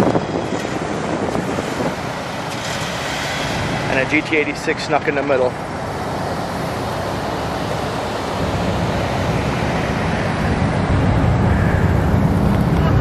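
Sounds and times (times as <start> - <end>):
wind on microphone: 0.0 - 3.9, 6.1 - 13.0
traffic: 0.0 - 13.0
low rumble: 8.2 - 13.0.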